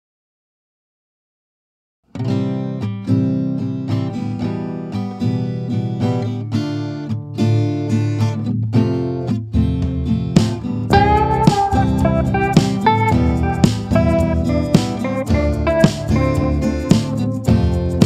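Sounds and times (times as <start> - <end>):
acoustic guitar music: 2.1 - 18.0.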